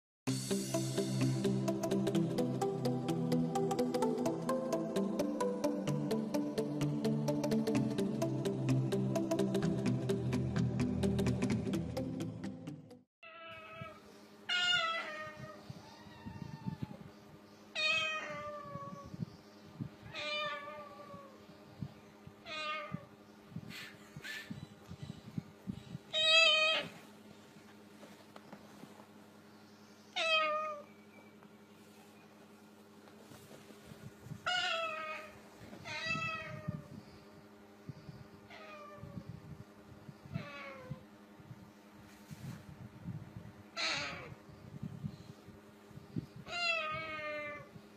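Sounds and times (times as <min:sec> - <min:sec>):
cockatoo mimicking cat meows: 0:34.5 - 0:36.8, 0:46.5 - 0:47.7.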